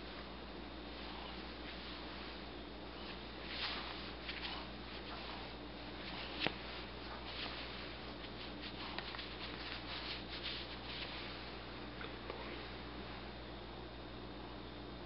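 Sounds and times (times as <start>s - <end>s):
cat rustling against blanket: 0.0s - 11.7s
steady low hum: 0.0s - 15.0s.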